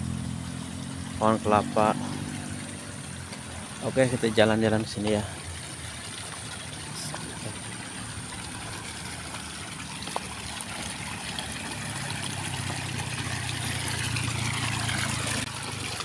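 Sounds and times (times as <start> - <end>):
water trickling in a channel: 0.0 - 16.0.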